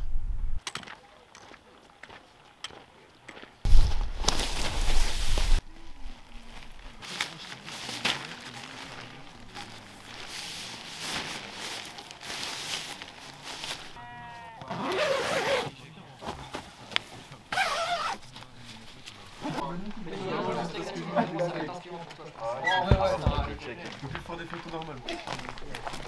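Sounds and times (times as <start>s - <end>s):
animal bleating: 14.0s - 14.9s.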